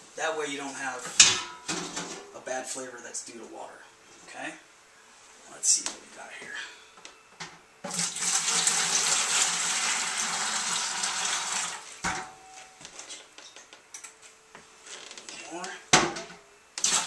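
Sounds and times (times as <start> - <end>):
water pouring into plastic bucket: 7.9 - 11.9.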